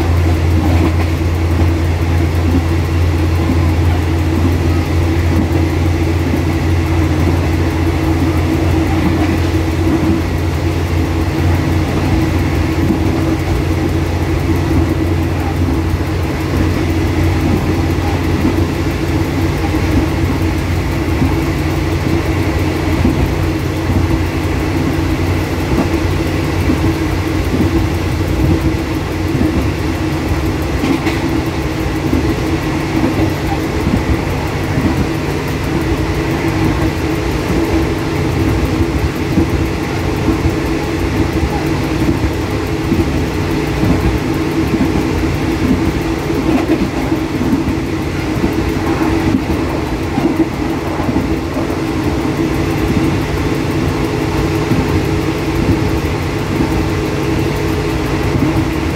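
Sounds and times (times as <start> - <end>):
train engine drone: 0.0 - 58.9
wheel-on-rail rumble: 0.0 - 58.9.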